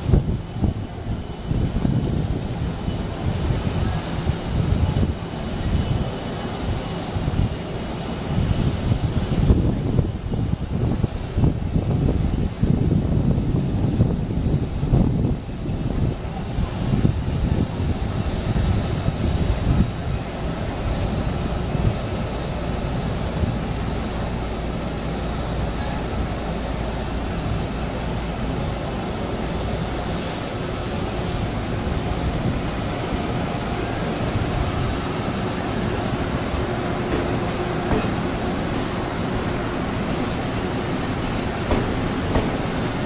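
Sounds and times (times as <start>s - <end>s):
train running gear rumble: 0.0s - 43.0s
train bumps: 29.1s - 43.0s.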